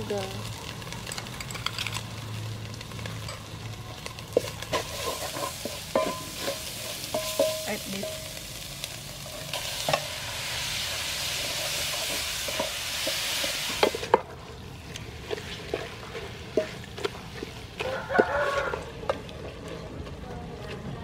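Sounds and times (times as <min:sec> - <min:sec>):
meat sizzling in hot oil: 0:00.0 - 0:18.8
wooden spoon scraping a pot: 0:04.4 - 0:07.6.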